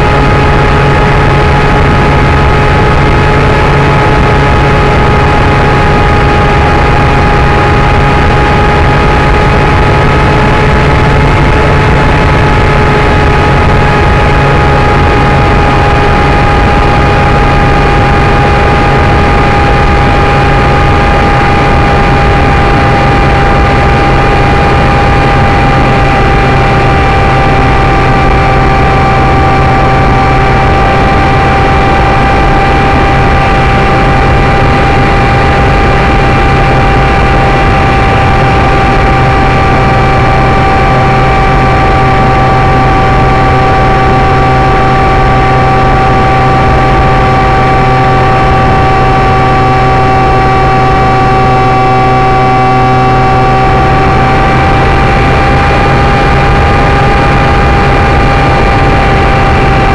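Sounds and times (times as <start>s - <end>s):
electric motor whine: 0.0s - 59.9s
wind rush: 0.0s - 59.9s.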